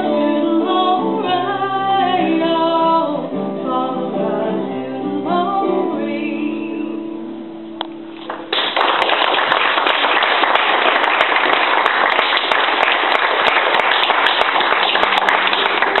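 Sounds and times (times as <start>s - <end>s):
audience applauding: 8.2s - 16.0s.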